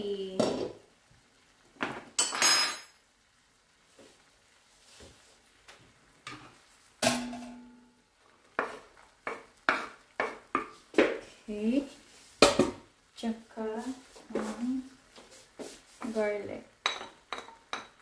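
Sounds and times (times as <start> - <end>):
spatula clattering in frying pan: 8.5 - 10.8, 16.8 - 18.0
spatula knocking on board: 8.6 - 11.2.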